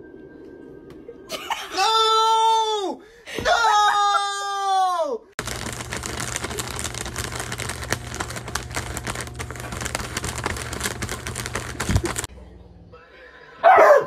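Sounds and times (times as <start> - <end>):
plastic bag crinkling: 5.4 - 12.3.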